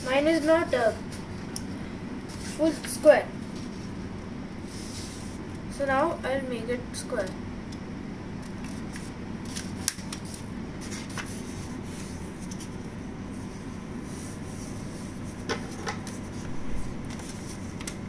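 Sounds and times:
steady low hum: 0.0s - 18.0s
paper rustling and rubbing: 2.2s - 5.4s, 8.5s - 18.0s.

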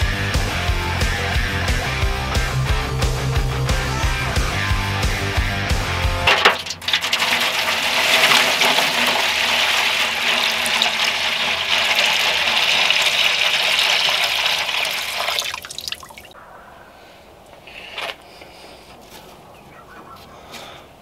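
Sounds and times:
liquid pouring into foil pan: 6.2s - 16.3s.

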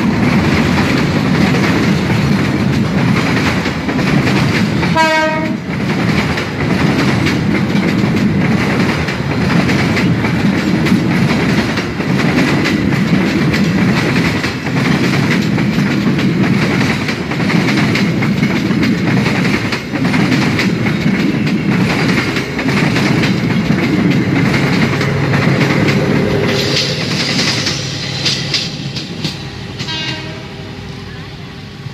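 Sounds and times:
train wheels clattering on rails: 0.0s - 30.4s
locomotive horn: 4.9s - 5.7s, 29.8s - 30.8s.

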